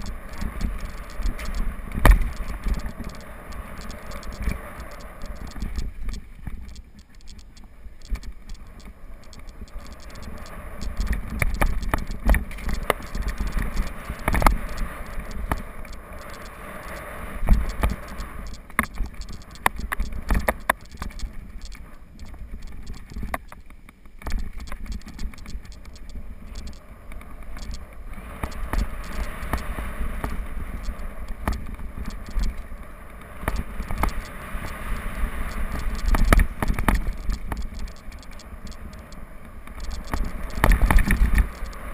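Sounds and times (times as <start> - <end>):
bike rattling: 0.0 - 32.7, 35.4 - 41.9
wind rumble on microphone: 0.0 - 41.9.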